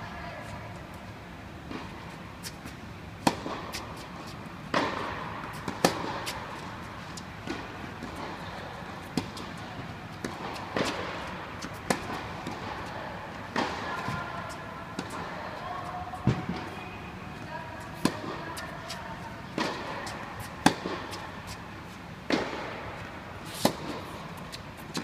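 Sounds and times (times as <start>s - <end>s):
tennis balls struck by rackets: 1.6s - 16.7s, 17.8s - 21.6s, 22.2s - 25.0s.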